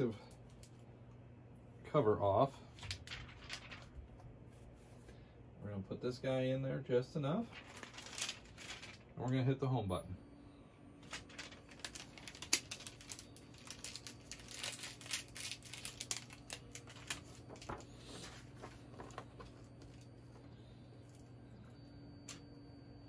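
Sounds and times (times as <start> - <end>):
faint motor hum: 0.0 - 23.0
plastic packaging crinkling: 2.8 - 4.2, 7.5 - 9.3, 11.0 - 20.4.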